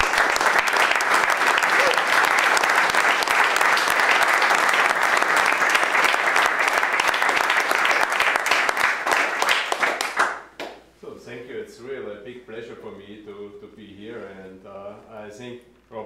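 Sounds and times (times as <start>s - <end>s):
audience applauding: 0.0s - 10.5s.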